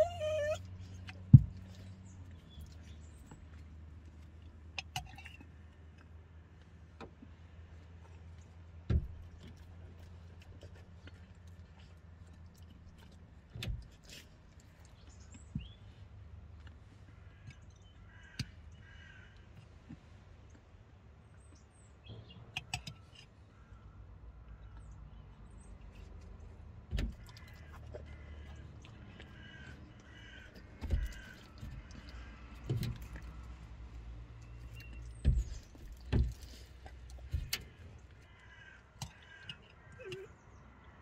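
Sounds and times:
crows cawing: 0:17.2 - 0:19.4, 0:27.3 - 0:32.6, 0:38.2 - 0:40.2
dull thumps: 0:35.0 - 0:37.8.

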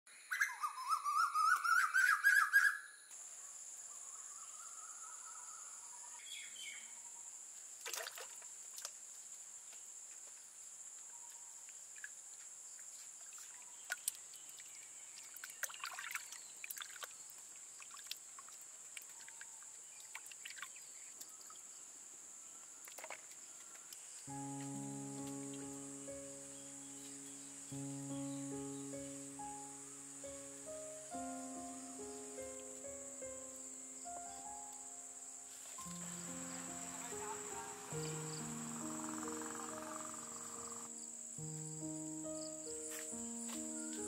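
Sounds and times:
water splashing in a pot: 0:07.8 - 0:09.0, 0:13.2 - 0:20.8
insect drone: 0:20.7 - 0:44.0
bird call rising notes: 0:24.3 - 0:44.0.

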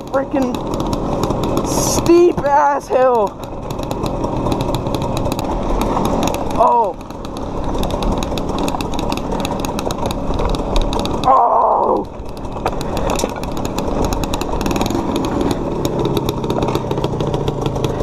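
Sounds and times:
clatter from rocky ground: 0:00.0 - 0:18.0
dirt bike engine running: 0:00.0 - 0:18.0.

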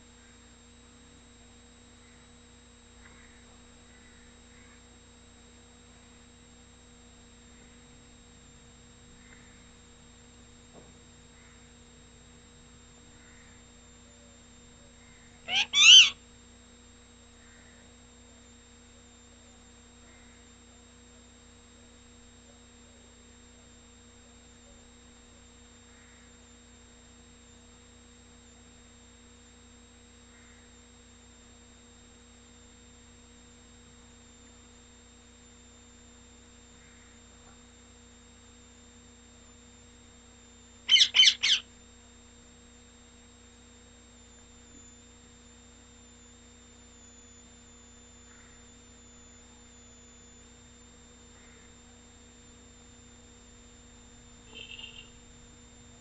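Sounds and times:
steady low hum: 0:00.0 - 0:56.0
thin high whine: 0:00.0 - 0:56.0
parakeet squawking: 0:15.5 - 0:16.2, 0:40.9 - 0:41.7.

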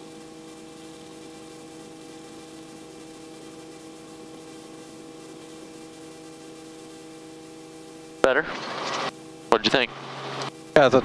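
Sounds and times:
helicopter running: 0:00.0 - 0:11.0
intercom hiss: 0:08.2 - 0:11.0.

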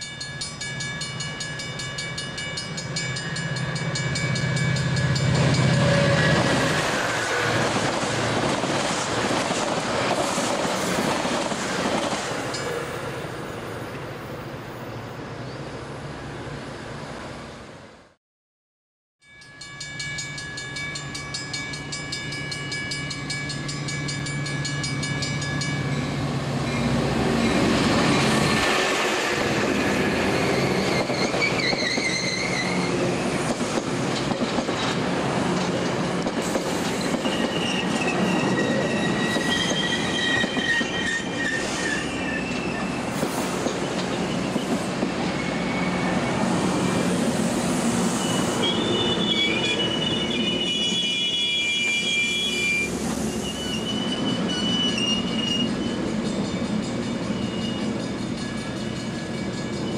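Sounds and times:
crossing warning bells ringing: 0:00.0 - 0:07.7, 0:12.4 - 0:13.3, 0:19.2 - 0:31.1, 0:48.2 - 0:59.9
train passing: 0:00.0 - 0:18.2, 0:19.6 - 0:59.9.

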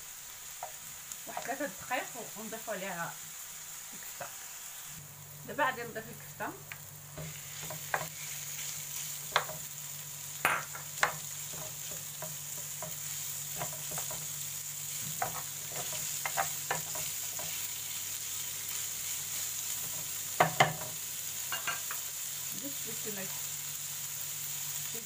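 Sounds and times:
meat and onions sizzling in oil: 0:00.0 - 0:25.0
spatula knocking on pan: 0:07.2 - 0:08.1, 0:09.3 - 0:09.7, 0:10.4 - 0:14.3, 0:15.1 - 0:17.6, 0:19.9 - 0:21.0.

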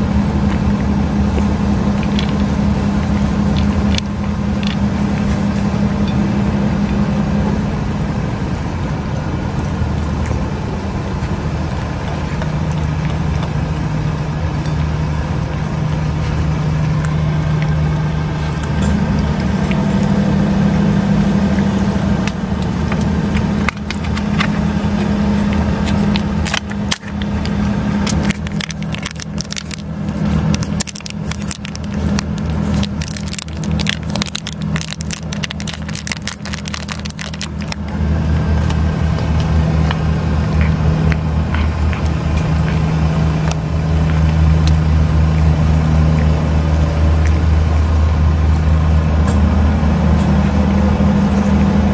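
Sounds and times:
vehicle engine idling hum: 0:00.0 - 0:51.9
plastic pouch crinkling: 0:23.6 - 0:38.0.

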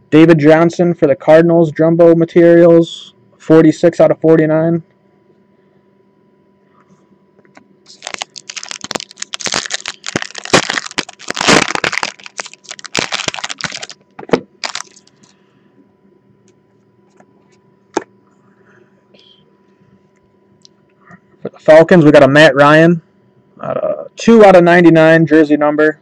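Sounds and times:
foil pack crackling: 0:07.9 - 0:14.0, 0:14.6 - 0:15.3.

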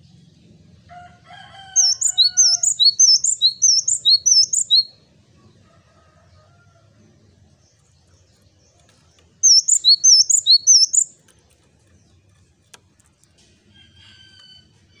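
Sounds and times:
bird singing whistled phrase: 0:01.8 - 0:04.9, 0:09.4 - 0:11.1.

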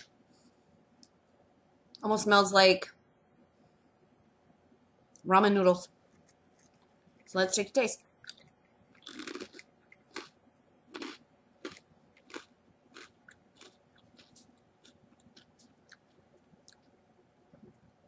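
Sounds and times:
rice cracker crunching: 0:08.2 - 0:16.9.

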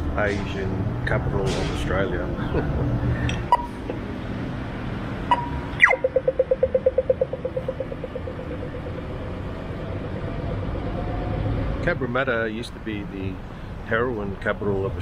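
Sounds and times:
traffic noise: 0:00.0 - 0:15.0
slow locator beeps: 0:03.4 - 0:03.8, 0:05.3 - 0:11.8.

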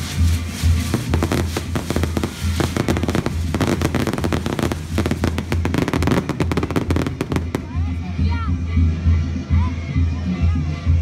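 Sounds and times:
fireworks bangs and crackles: 0:00.0 - 0:08.2.

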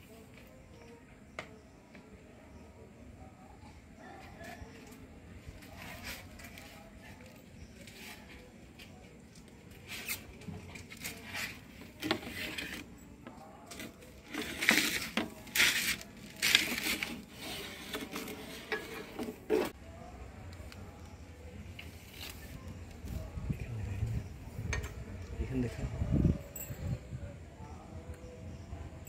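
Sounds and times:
rubbing and scraping noises: 0:04.2 - 0:19.8.

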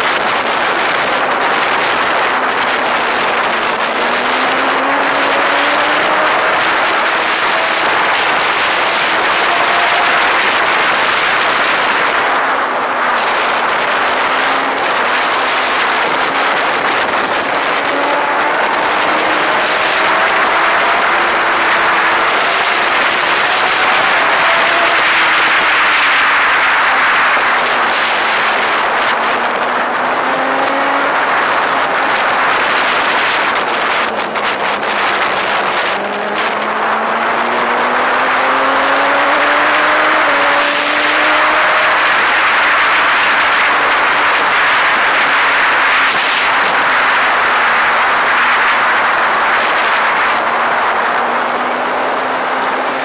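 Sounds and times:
heavy wind on microphone: 0:00.0 - 0:53.0
vehicle engine running: 0:00.0 - 0:53.0.

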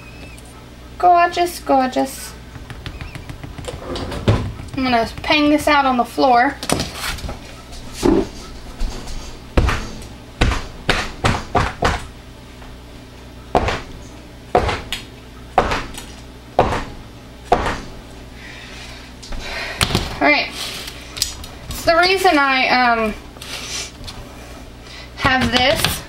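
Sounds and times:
mold banged on floor: 0:02.6 - 0:05.7.

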